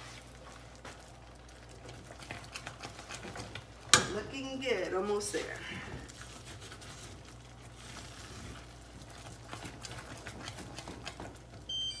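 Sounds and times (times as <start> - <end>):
fudge bubbling in a pot: 0.0 - 12.0
kitchen timer beeping: 11.7 - 12.0.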